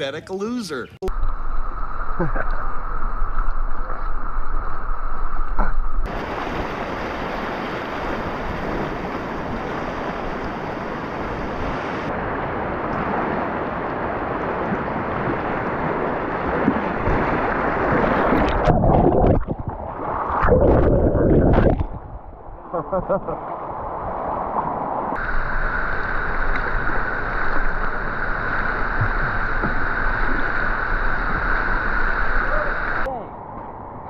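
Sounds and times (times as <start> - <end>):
wind on microphone: 1.2 - 34.0
water splashes: 6.0 - 33.1
whitewater rushing: 6.1 - 19.4.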